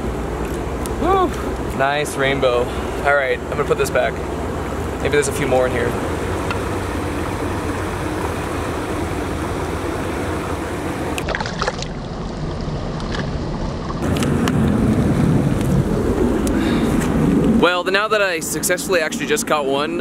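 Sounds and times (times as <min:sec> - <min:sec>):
river water flowing: 0:00.0 - 0:17.0
small water splashes: 0:11.2 - 0:12.4
wind on microphone: 0:13.1 - 0:17.8.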